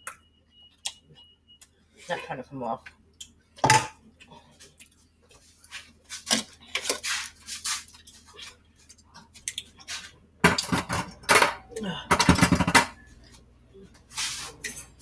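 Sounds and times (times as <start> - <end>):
kitchen utensils clinking and scraping: 14.2 - 15.0.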